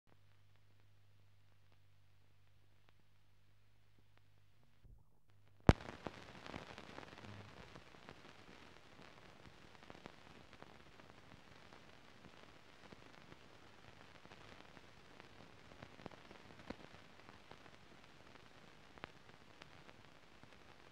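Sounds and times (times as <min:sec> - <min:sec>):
film crackle and hiss: 0:00.1 - 0:20.9
sharp pop: 0:05.6 - 0:06.1.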